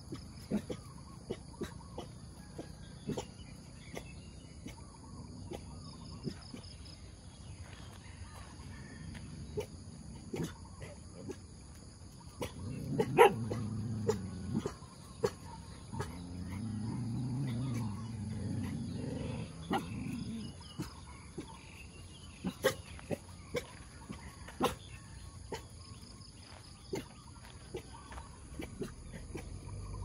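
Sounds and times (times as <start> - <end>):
dog growling: 12.3 - 25.2.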